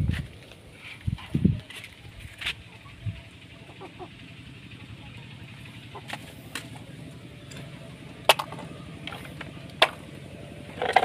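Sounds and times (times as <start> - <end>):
low background hum: 0.0 - 11.0
plastic toy truck clicks and knocks: 8.3 - 9.2, 9.8 - 10.0, 10.8 - 11.0.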